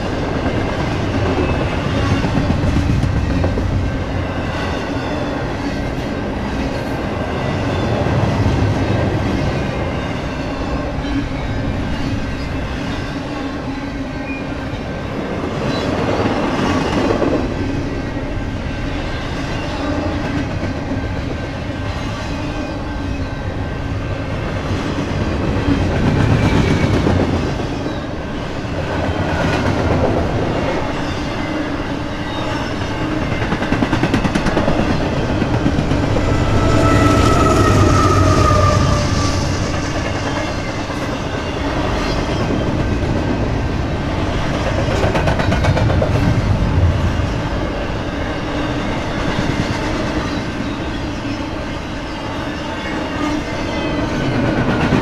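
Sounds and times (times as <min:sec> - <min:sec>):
freight train rumbling: 0:00.0 - 0:55.0
faint high squeal: 0:36.0 - 0:40.4.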